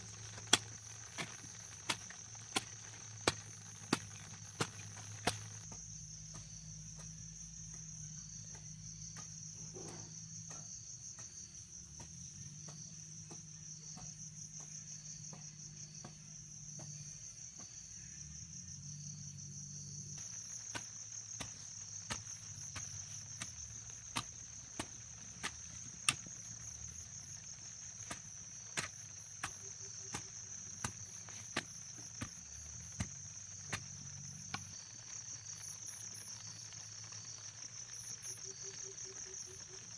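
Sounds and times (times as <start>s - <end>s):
hoe blade striking soil: 0.0s - 6.4s, 20.2s - 34.8s
insects shrilling: 0.0s - 7.4s, 20.0s - 39.9s.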